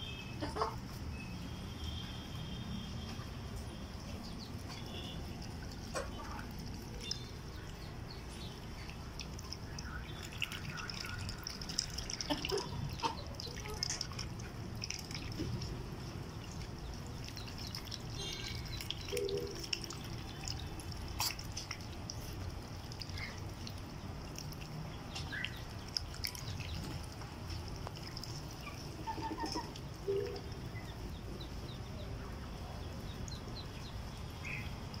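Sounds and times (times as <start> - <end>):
water drips and small splashes: 0.0 - 35.0.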